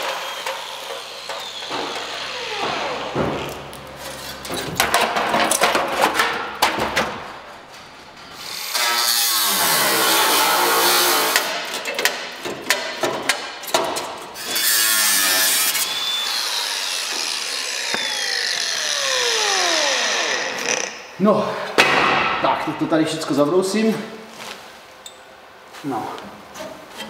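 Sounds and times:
angle grinder on sheet steel: 0:00.0 - 0:03.2, 0:08.4 - 0:11.5, 0:14.4 - 0:21.0.

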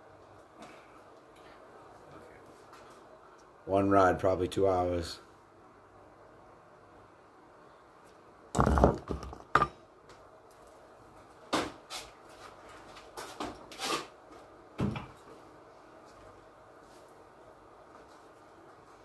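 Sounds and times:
dirt bike knocks and clunks: 0:08.6 - 0:09.8.

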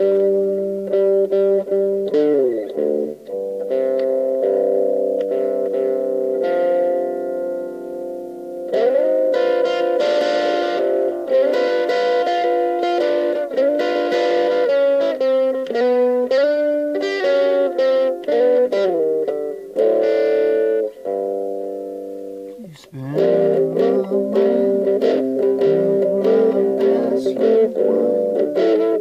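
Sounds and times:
overdriven electric guitar riff: 0:00.0 - 0:29.0.

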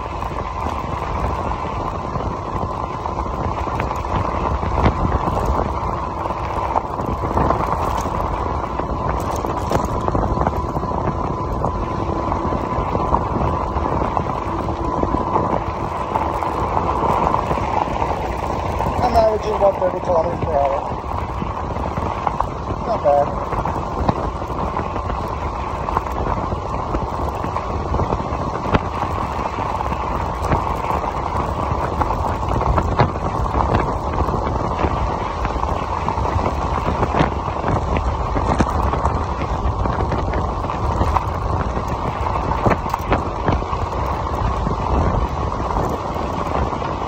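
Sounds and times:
tyres rumbling on gravel: 0:00.0 - 0:47.0
small rattles: 0:04.8 - 0:26.4.

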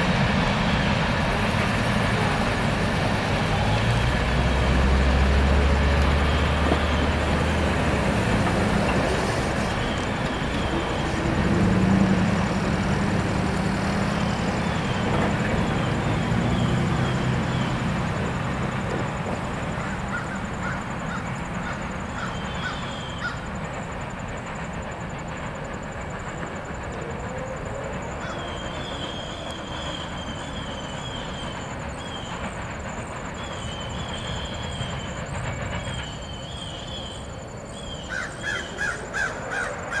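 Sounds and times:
freight train rumbling by: 0:00.0 - 0:40.0
crow cawing: 0:19.8 - 0:23.4, 0:38.1 - 0:40.0.

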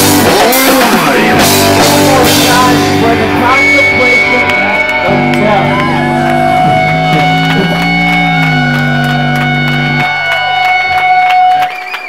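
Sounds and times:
electric guitar chord: 0:00.0 - 0:11.6
live rock band playing: 0:00.0 - 0:11.8
high steady tone: 0:01.7 - 0:11.2.

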